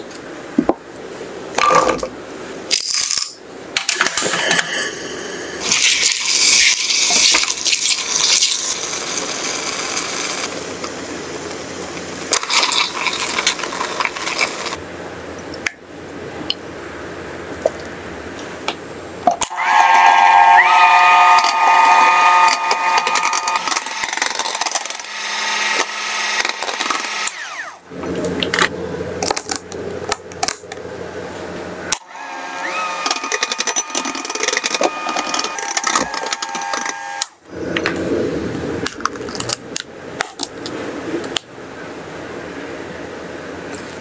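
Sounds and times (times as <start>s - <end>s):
electric hand mixer whine: 5.6s - 10.9s, 19.5s - 28.1s, 31.9s - 37.4s
mixer clicks: 21.0s - 27.6s, 31.9s - 37.4s.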